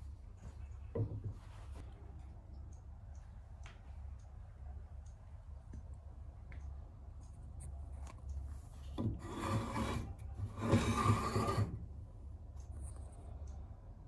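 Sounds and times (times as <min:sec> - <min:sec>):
wood scraping on wood: 0:08.8 - 0:11.9.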